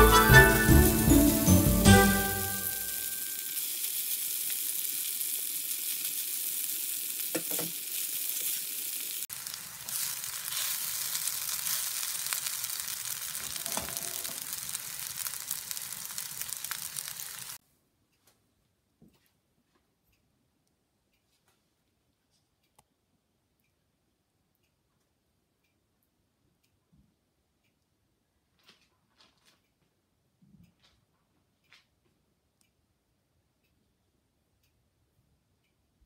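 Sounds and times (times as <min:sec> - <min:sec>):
food sizzling in pan: 0:00.0 - 0:17.6.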